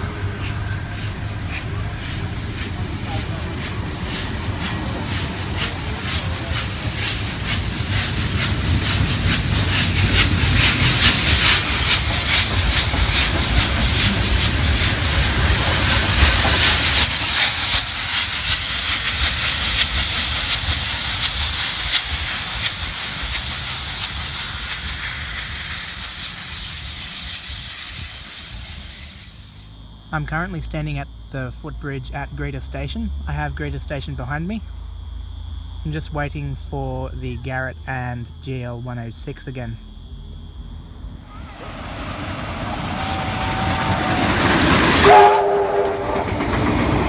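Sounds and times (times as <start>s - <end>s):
wheels clicking over rail joints: 0.0s - 29.6s, 41.3s - 47.0s
steam hissing: 0.0s - 29.8s, 41.2s - 47.0s.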